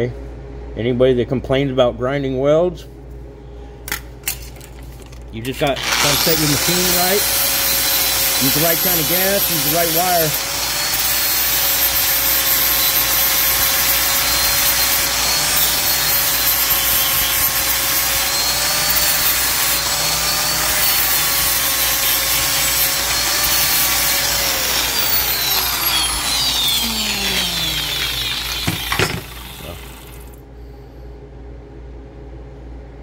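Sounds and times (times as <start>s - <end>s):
angle grinder grinding steel: 5.6s - 30.4s
grinder disc spinning down: 5.6s - 30.4s.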